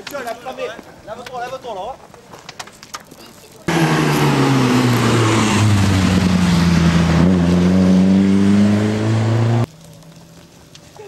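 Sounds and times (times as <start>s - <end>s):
rally car engine accelerating: 3.7s - 9.7s
exhaust and tyre rush: 3.7s - 10.6s.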